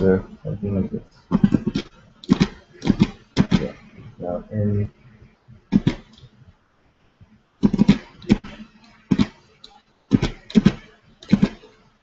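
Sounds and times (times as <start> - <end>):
mouse and keyboard clicks: 1.4 - 3.8, 5.7 - 6.3, 7.6 - 11.8.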